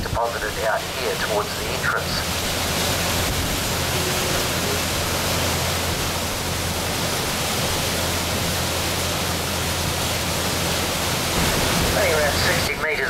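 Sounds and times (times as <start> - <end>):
low engine hum: 0.0 - 13.0
propeller wake churning: 0.0 - 13.0.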